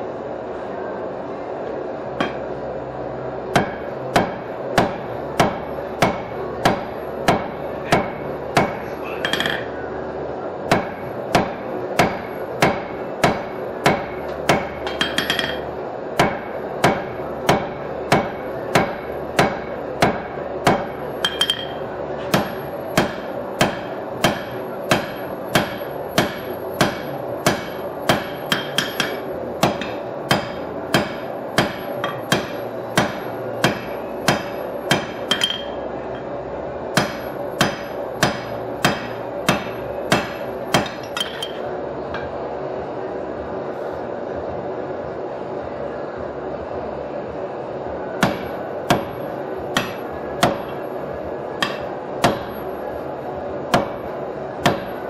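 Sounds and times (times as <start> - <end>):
steady background noise: 0.0 - 55.0
hammer striking steel on anvil: 2.2 - 2.5, 3.5 - 9.7, 10.7 - 36.3, 37.0 - 42.4, 48.2 - 49.2, 49.8 - 50.8, 51.6 - 52.7, 53.7 - 55.0.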